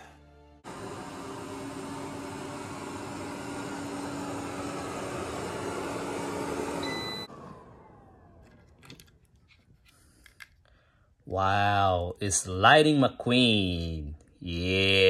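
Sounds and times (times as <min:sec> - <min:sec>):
motor winding down whine: 0:00.6 - 0:08.8
robot vacuum running: 0:00.7 - 0:08.7.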